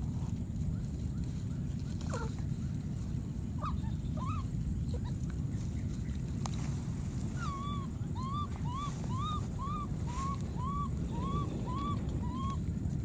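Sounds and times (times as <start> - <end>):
steady low rumble: 0.0 - 13.0
baby monkey cooing calls: 3.6 - 5.7, 7.2 - 12.7.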